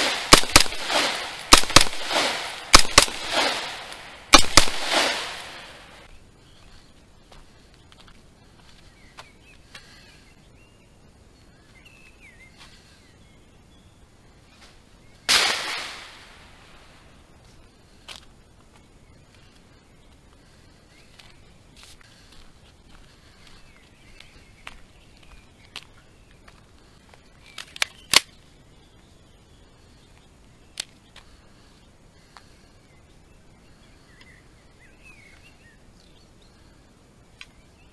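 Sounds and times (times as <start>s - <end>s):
loud rifle shot: 0.0s - 6.1s, 15.3s - 16.5s
birds chirping faintly: 0.0s - 37.9s.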